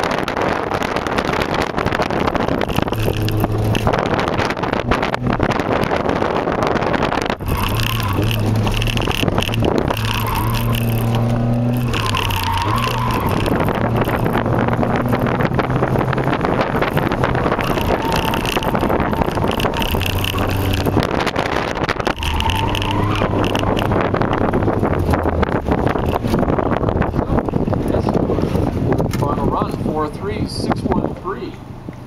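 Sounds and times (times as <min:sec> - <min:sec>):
tires squealing: 0:00.0 - 0:29.0
car engine revving: 0:00.0 - 0:30.2.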